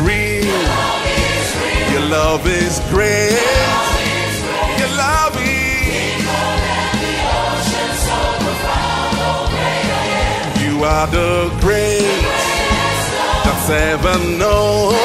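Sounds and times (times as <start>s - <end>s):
man singing lead: 0.0s - 6.4s, 10.5s - 15.0s
band accompaniment: 0.0s - 15.0s
choir singing: 0.1s - 15.0s.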